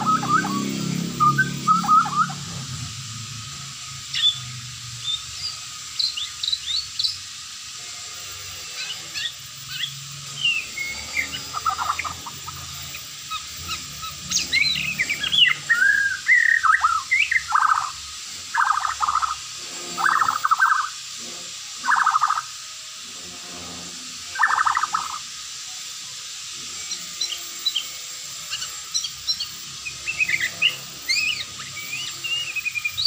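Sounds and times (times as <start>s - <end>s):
bird singing chirps and whistles: 0.0s - 2.8s, 4.0s - 7.3s, 8.7s - 19.4s, 20.0s - 21.0s, 21.8s - 22.5s, 24.3s - 25.3s, 26.8s - 33.0s.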